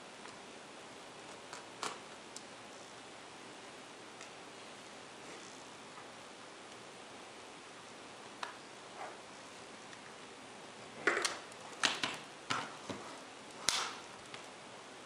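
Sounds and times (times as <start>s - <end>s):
plastic clips snapping: 13.6s - 14.4s.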